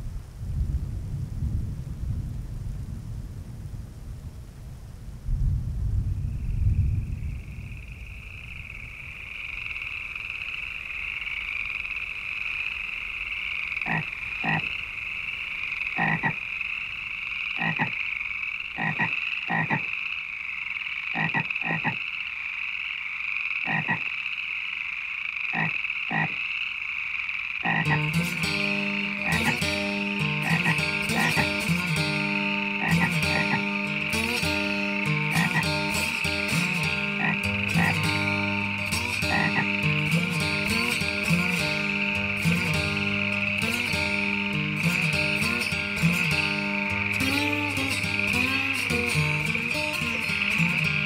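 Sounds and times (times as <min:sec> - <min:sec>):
frogs croaking: 0:06.0 - 0:51.0
high-pitched marsh trill: 0:27.8 - 0:51.0
plucked guitar music: 0:27.8 - 0:51.0.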